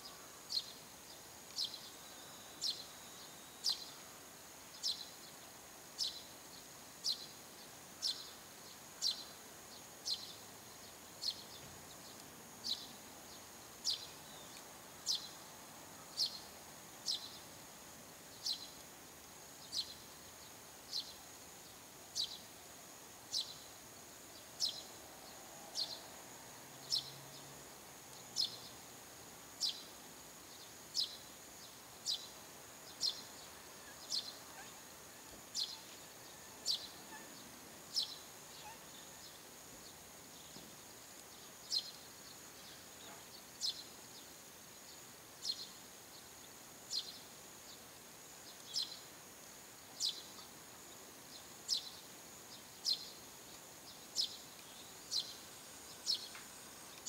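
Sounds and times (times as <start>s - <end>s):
sparrow chirping: 35.5s - 36.0s, 54.1s - 55.4s.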